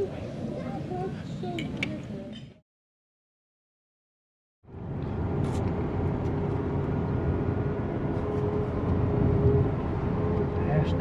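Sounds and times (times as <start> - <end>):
car engine and road rumble: 4.7 - 11.0.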